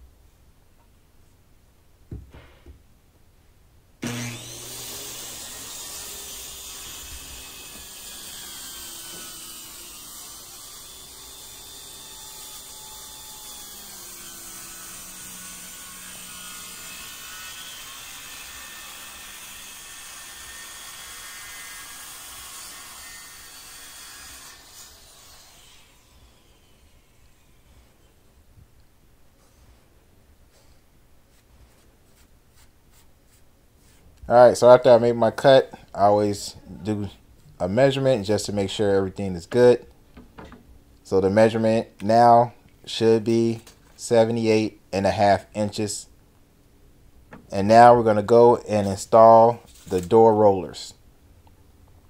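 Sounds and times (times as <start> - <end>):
short knock: 2.1 - 2.8
circular saw cutting wood: 4.0 - 28.2.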